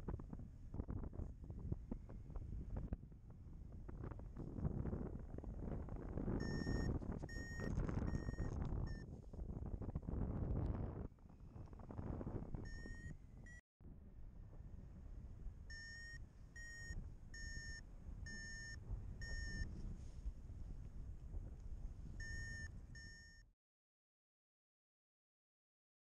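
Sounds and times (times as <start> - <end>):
wind rushing over microphone: 0.0 - 13.6, 16.6 - 23.1
short high beeps: 15.7 - 19.7, 22.2 - 23.4.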